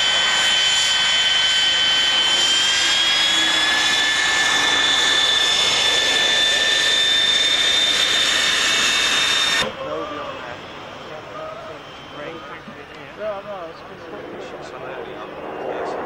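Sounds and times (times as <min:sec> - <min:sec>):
jet noise rush: 0:00.0 - 0:09.8, 0:13.6 - 0:16.0
jet engine whining: 0:00.0 - 0:16.0.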